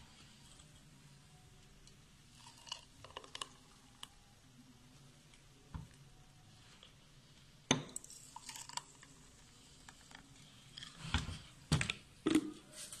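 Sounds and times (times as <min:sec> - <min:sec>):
milkshake pouring: 0:02.3 - 0:04.2, 0:07.9 - 0:11.0.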